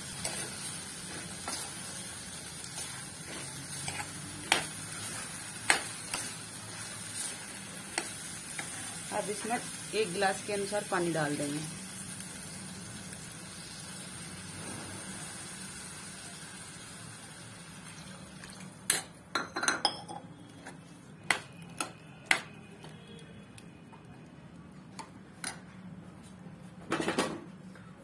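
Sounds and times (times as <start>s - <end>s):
water hissing in a hot pan: 0.0s - 18.4s
metal spoon stirring curry: 0.1s - 9.5s.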